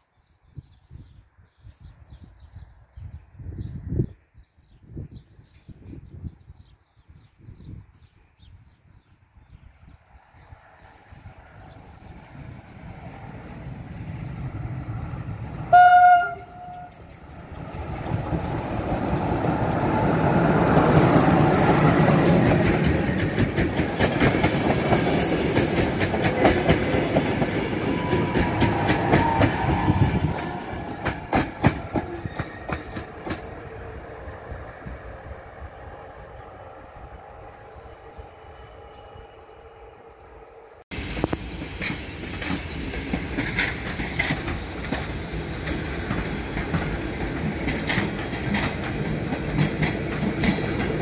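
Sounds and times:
passing train rumble: 9.6 - 51.0
train horn blast: 15.7 - 17.0
wheels clicking over rail joints: 16.6 - 24.8, 41.2 - 51.0.

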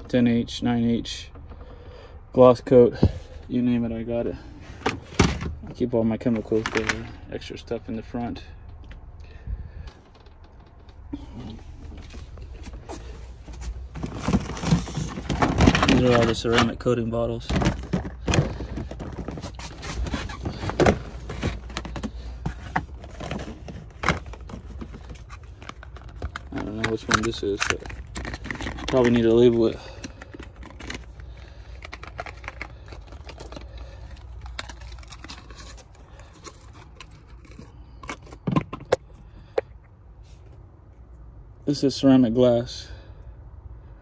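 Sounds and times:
plastic bins knocking and rattling: 13.6 - 31.1.

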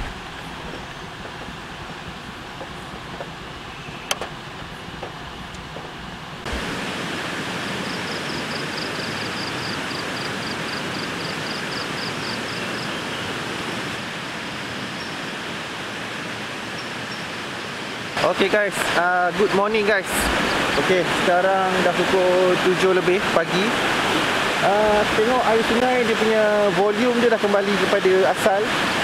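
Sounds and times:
steady rain hiss: 0.0 - 29.0
faint high pulsing chirping: 2.6 - 4.8.

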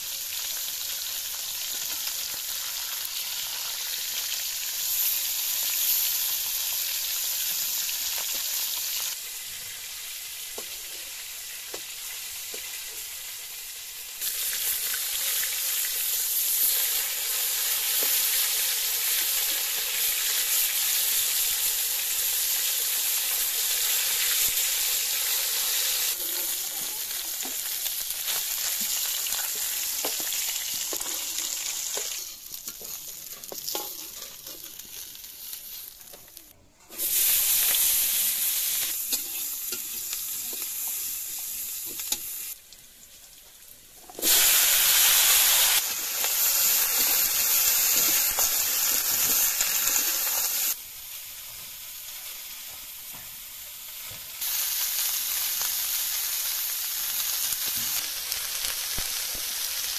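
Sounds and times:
fish sizzling in hot oil: 0.0 - 59.9
spatula scraping a wok: 26.0 - 28.5, 30.0 - 36.3, 38.6 - 41.0.

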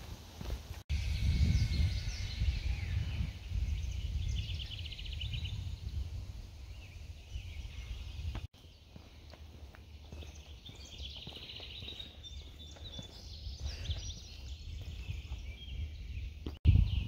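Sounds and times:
wind rumble on microphone: 0.7 - 8.5, 13.3 - 17.0
bird trill: 0.9 - 5.8
small birds singing: 0.9 - 17.0.

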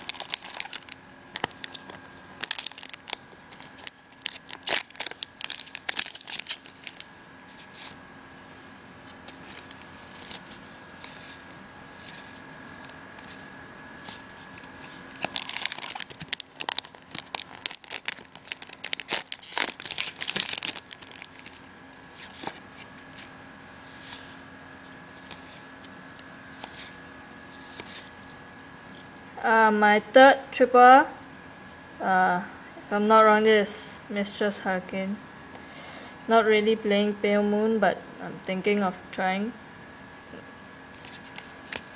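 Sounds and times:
foil wrapper crinkling and tearing: 0.0 - 8.0, 9.3 - 10.6, 14.1 - 23.3.

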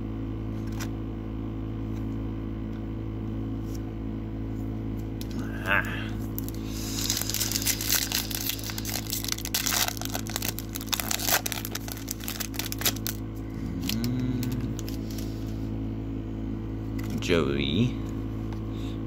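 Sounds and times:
trading cards shuffling: 6.2 - 15.6.

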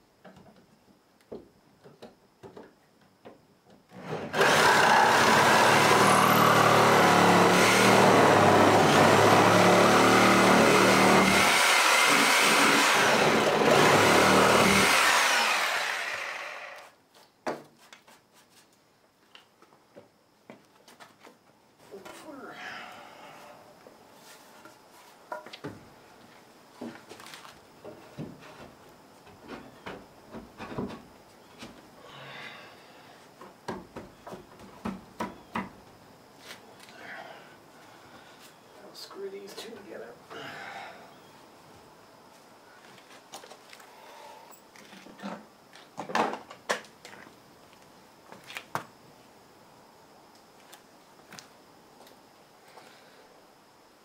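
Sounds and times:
wooden knocks and clunks: 1.3 - 3.8, 17.4 - 17.8, 24.6 - 25.9, 27.8 - 31.8, 33.4 - 35.8
person moving about on floor: 17.1 - 22.3, 23.8 - 29.8.

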